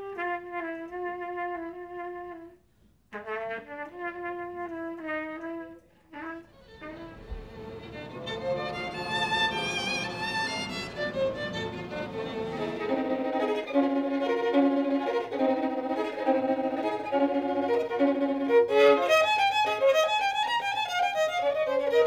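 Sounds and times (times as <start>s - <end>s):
violin melody: 6.2s - 22.0s.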